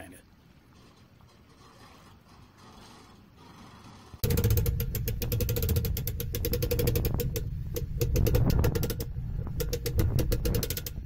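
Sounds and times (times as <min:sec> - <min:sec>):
low road and engine rumble: 0:00.4 - 0:11.0
trailer clattering and rattling: 0:03.9 - 0:11.0.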